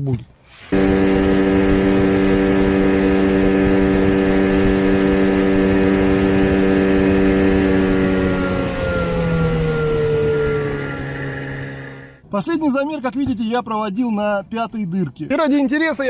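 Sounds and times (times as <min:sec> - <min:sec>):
outboard motor at high revs: 0:00.7 - 0:12.2.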